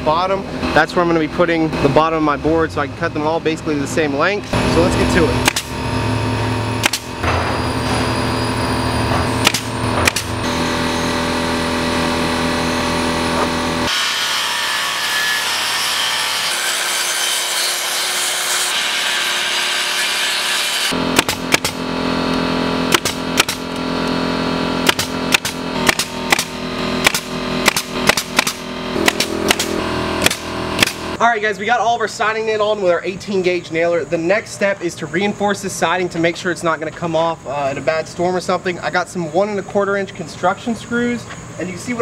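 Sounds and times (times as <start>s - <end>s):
circular saw cutting wood: 4.2s - 31.2s
air compressor running: 4.5s - 14.0s, 20.9s - 31.2s
pneumatic nailer firing: 5.4s - 14.2s, 20.1s - 31.2s.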